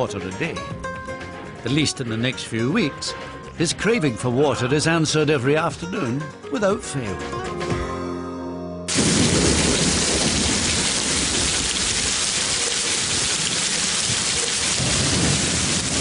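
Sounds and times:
heavy rain: 8.9 - 16.0
low rumble of thunder: 8.9 - 16.0.

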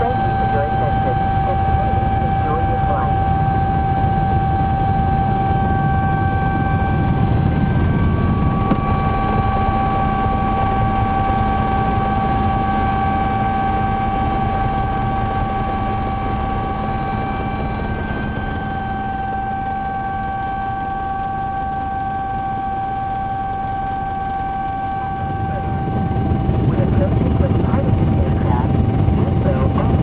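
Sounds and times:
helicopter rotor and engine noise: 0.0 - 30.0
high helicopter whine: 0.0 - 30.0.

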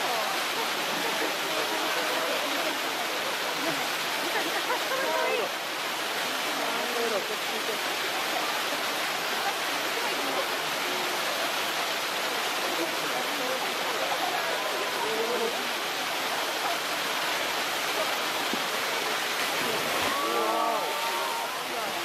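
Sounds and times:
running water rushing: 0.0 - 22.0
faint voices: 6.3 - 22.0
splash into water: 18.4 - 21.5.

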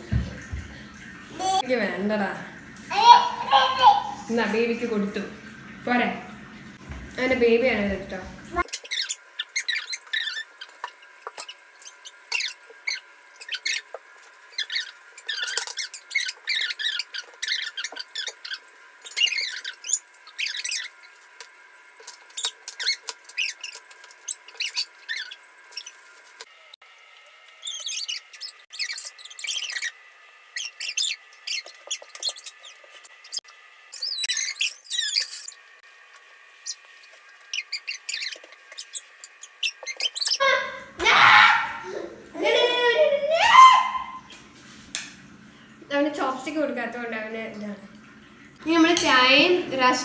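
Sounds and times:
high-pitched squeaky chirps: 8.6 - 21.2, 22.3 - 26.0, 27.6 - 35.6, 37.5 - 41.7.

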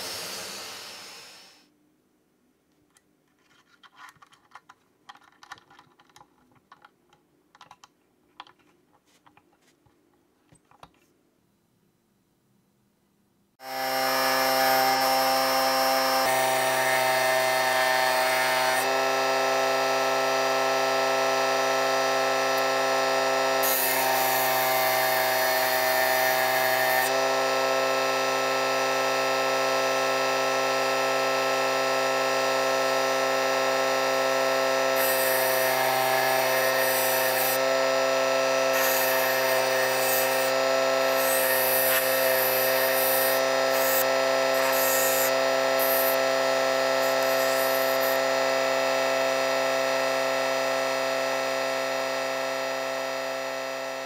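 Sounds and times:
motor whining: 34.9 - 49.8
grinding hiss: 38.7 - 46.2, 47.0 - 48.2.

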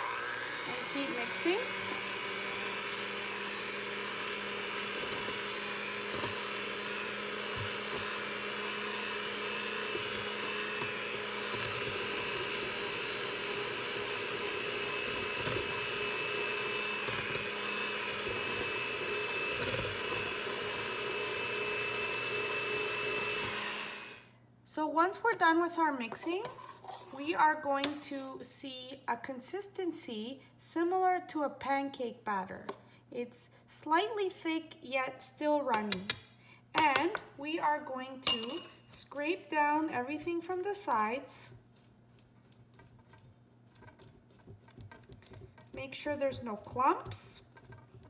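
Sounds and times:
electric hand mixer whining: 0.0 - 24.3, 43.0 - 48.0.

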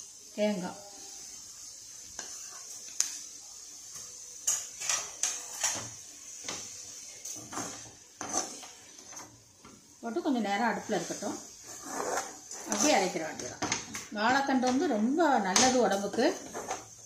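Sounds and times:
spoon scraping in cooking pan: 1.0 - 9.9, 10.6 - 13.9, 15.5 - 17.0.

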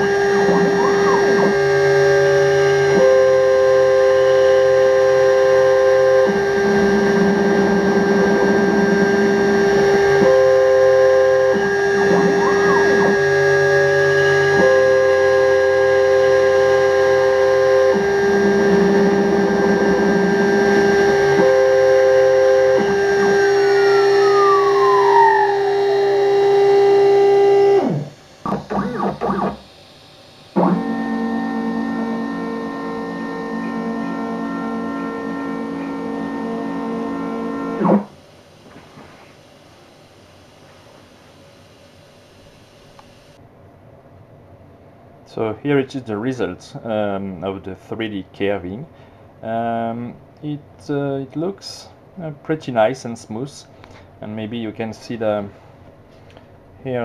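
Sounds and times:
spindle whine: 0.0 - 43.4
stepper motor tones: 0.0 - 43.4.

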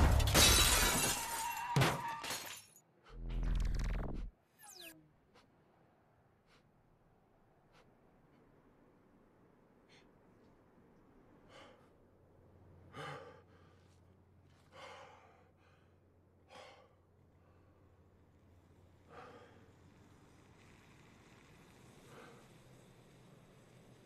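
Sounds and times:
man breathing heavily: 6.4 - 9.0, 9.6 - 18.2, 19.0 - 19.8.

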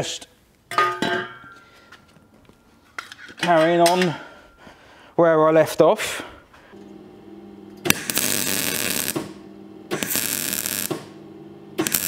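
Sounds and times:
welder hum: 6.8 - 12.0
welding arc hiss and crackle: 7.9 - 11.1, 11.8 - 12.0.

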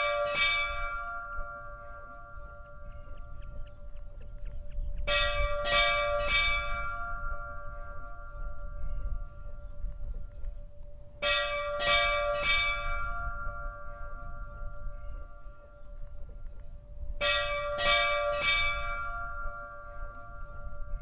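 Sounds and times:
church bell strikes: 0.0 - 4.4, 5.0 - 16.3, 17.2 - 21.0.

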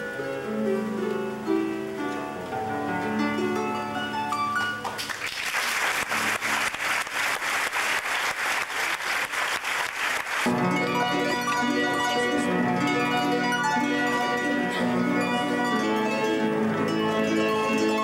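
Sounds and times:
fast hand clapping: 4.8 - 10.5
harp plucked notes: 10.5 - 18.0.

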